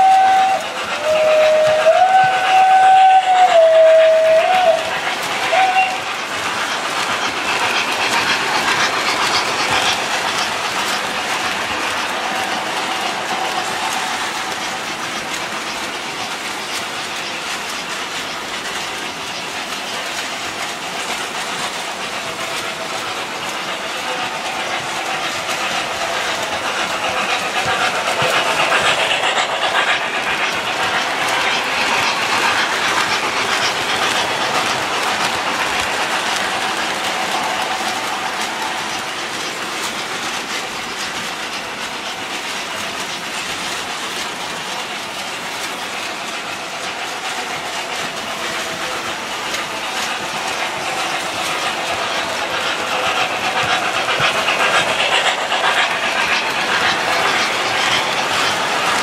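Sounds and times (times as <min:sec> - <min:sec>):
model trains clattering on rails: 0:00.0 - 0:59.0.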